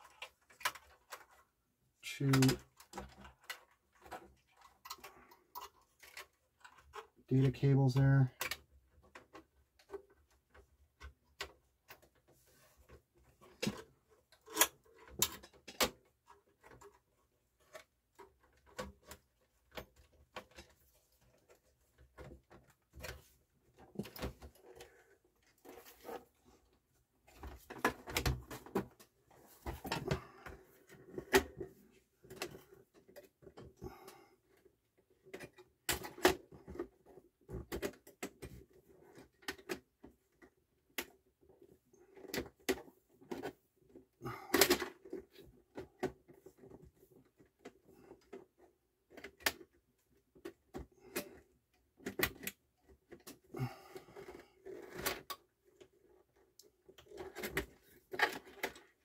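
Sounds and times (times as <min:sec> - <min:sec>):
plastic and metal handling clicks: 0:42.1 - 0:48.5, 0:50.4 - 0:53.5.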